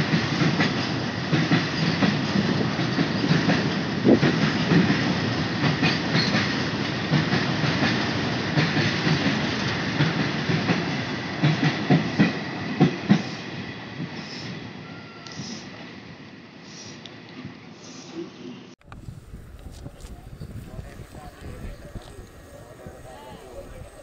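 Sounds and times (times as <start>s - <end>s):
train wheels clattering over rail joints: 0.0s - 13.4s.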